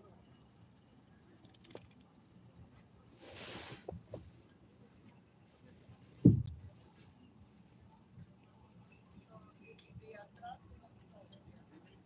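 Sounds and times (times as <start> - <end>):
short hiss: 3.2 - 4.0
loud dull thump: 6.2 - 6.6.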